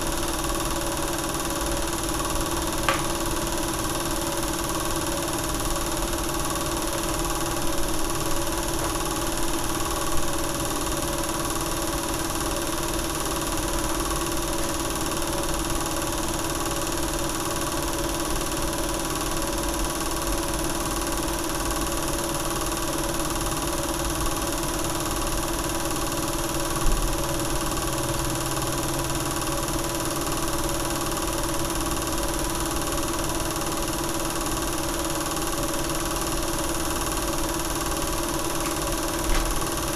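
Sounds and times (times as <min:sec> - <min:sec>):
film projector whirring: 0:00.0 - 0:39.9
projector clicks: 0:02.9 - 0:03.4, 0:38.4 - 0:39.9.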